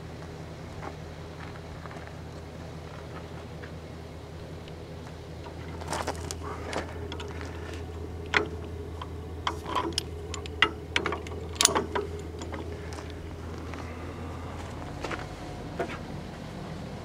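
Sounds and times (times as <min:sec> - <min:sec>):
steady low hum: 0:00.0 - 0:17.0
winch hook clinking on shackle: 0:07.0 - 0:13.4.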